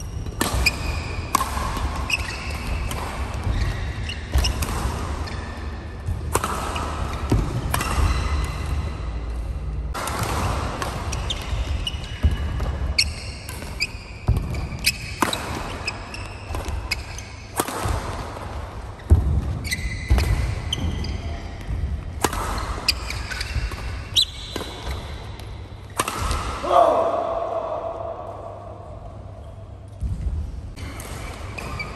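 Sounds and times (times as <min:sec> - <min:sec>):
shoes squeaking on court: 0:00.0 - 0:06.1, 0:11.0 - 0:17.5, 0:19.0 - 0:26.0, 0:30.8 - 0:31.9
rackets hitting shuttlecock: 0:00.0 - 0:27.2.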